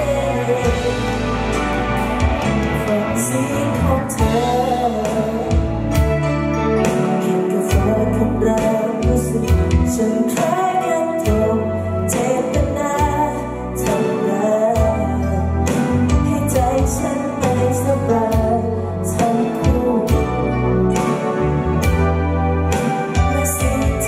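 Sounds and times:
low bass notes: 0:00.0 - 0:07.1, 0:14.8 - 0:24.0
guitar: 0:00.0 - 0:24.0.

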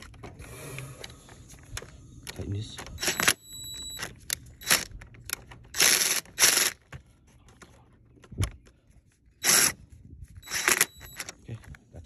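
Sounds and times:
cordless drill spinning: 0:03.0 - 0:04.9, 0:05.7 - 0:06.8, 0:09.4 - 0:09.8, 0:10.4 - 0:11.3.

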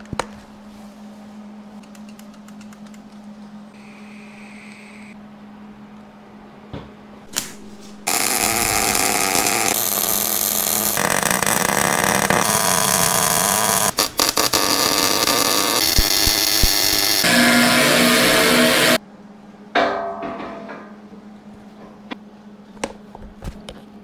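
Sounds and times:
arc welding hiss: 0:08.1 - 0:11.3, 0:12.0 - 0:19.0.

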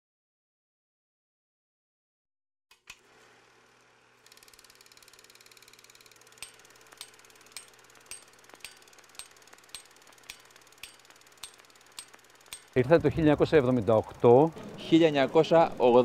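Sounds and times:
film projector fluttering: 0:02.7 - 0:16.0
sharp clicks: 0:04.4 - 0:14.7.

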